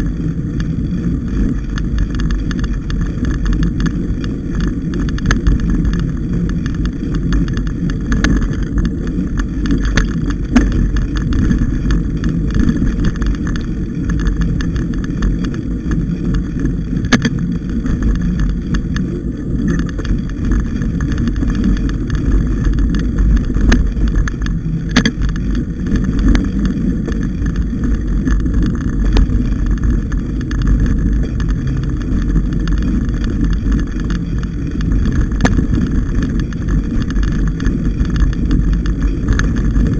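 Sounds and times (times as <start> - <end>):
bike rattling over bumps: 0.0 - 39.9
bike tyres rumbling on dirt: 0.0 - 39.9
wind buffeting microphone: 0.0 - 39.9.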